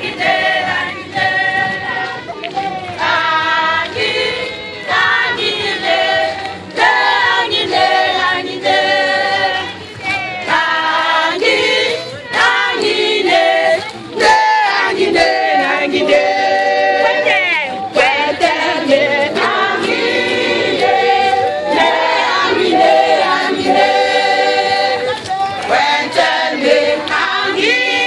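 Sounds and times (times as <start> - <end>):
women singing together: 0.0 - 28.0.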